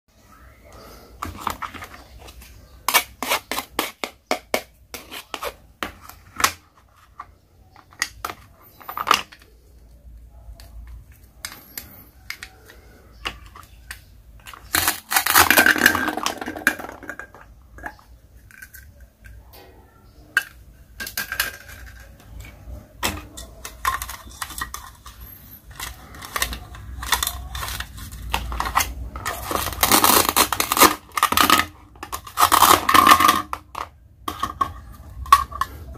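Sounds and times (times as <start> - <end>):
plastic toy food clicking on board: 20.4 - 35.9.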